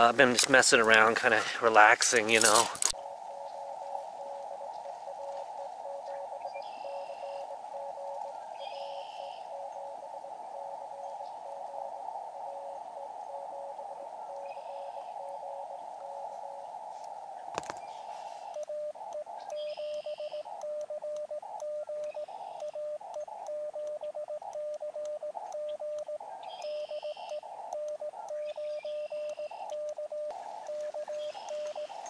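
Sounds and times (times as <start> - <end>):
radio receiver hiss: 0.0 - 32.0
morse code beeps: 4.1 - 9.7, 18.0 - 32.0.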